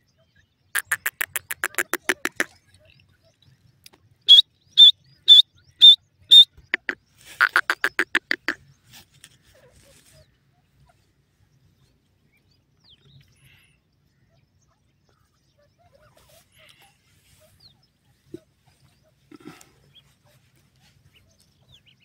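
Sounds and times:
bird calling sharp high notes: 0.8 - 2.5, 4.3 - 8.6
bird lower rapid notes: 0.8 - 2.5, 4.3 - 8.6.

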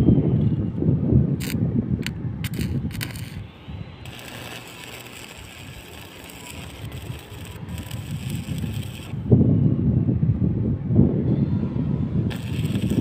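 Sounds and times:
welding arc crackling: 2.4 - 3.4, 4.0 - 9.2, 12.3 - 13.0.

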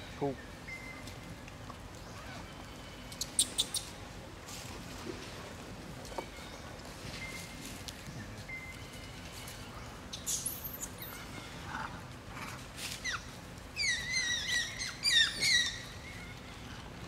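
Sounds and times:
infant monkey squealing: 13.8 - 15.9.

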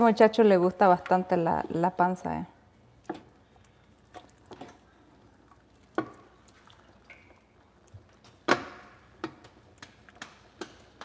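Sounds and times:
liquid dripping: 3.0 - 11.0.

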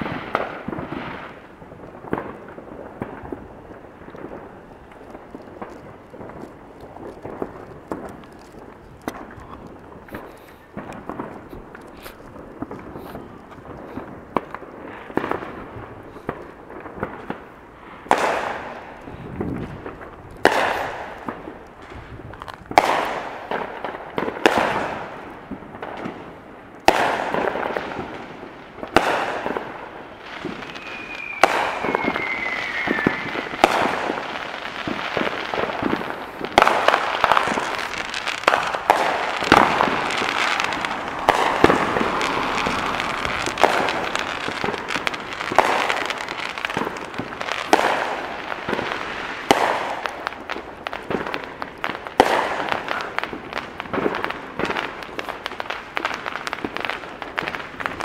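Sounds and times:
fireworks bangs: 0.0 - 58.0
fireworks crackling: 0.0 - 58.0
falling whistle: 30.7 - 33.5.

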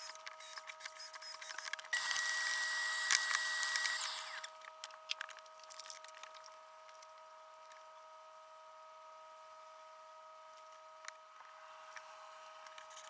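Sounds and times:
vacuum cleaner motor whine: 1.9 - 4.6.

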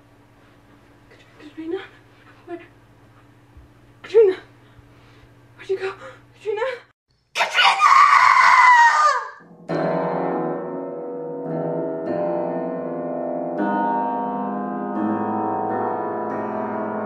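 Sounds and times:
shrill scream: 7.4 - 9.4
keyboard music with held chords: 9.4 - 17.0.

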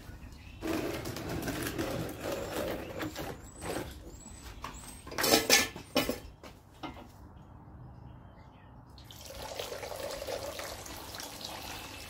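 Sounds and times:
plastic tub scraping over concrete: 0.6 - 6.2.

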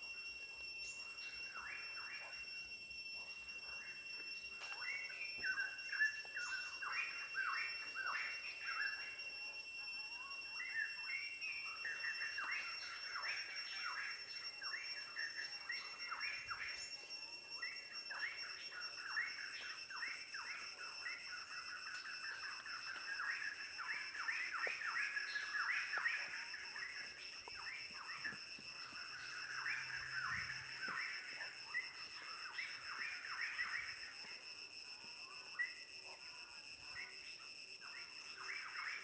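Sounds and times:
high-pitched insect drone: 0.0 - 39.0.

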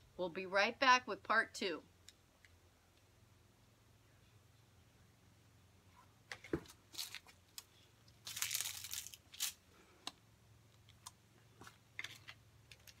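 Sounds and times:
rustling and handling noises: 5.9 - 13.0.

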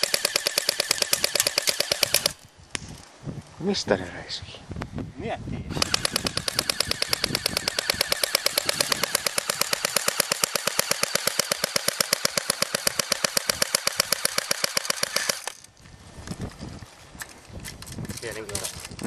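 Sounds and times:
airsoft gun full-auto firing: 0.0 - 2.4, 5.7 - 15.6.

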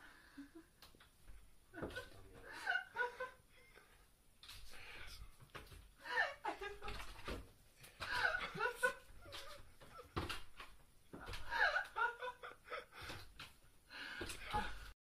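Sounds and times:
people laughing: 1.8 - 3.4, 8.0 - 10.2, 11.2 - 13.2.

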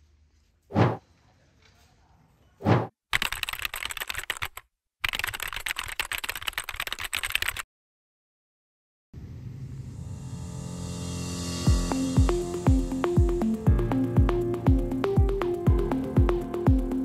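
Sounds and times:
keyboard typing clicks: 3.2 - 7.6.

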